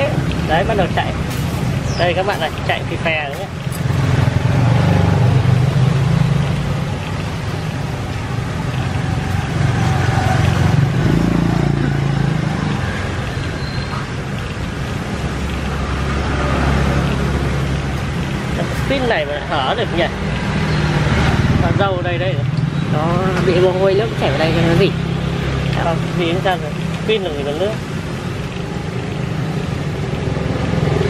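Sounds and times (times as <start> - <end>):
street traffic: 0.0 - 31.0.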